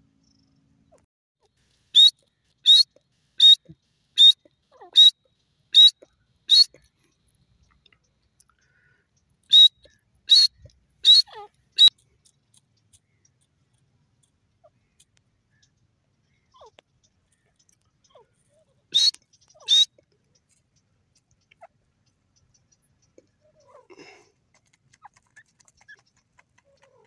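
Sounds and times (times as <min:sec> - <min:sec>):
bird calling sharp high notes: 0:02.0 - 0:03.6, 0:04.2 - 0:05.2, 0:05.8 - 0:06.8, 0:09.5 - 0:11.9, 0:18.9 - 0:19.9.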